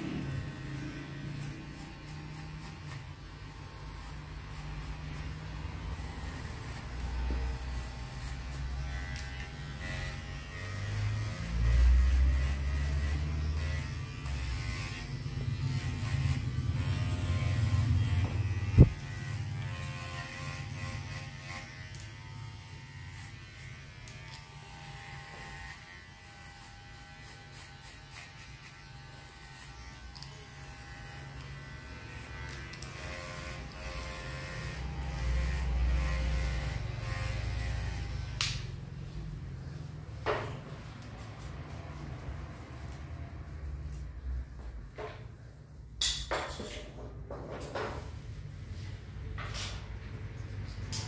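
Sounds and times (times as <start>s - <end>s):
hair clipper buzzing: 0.0s - 39.8s.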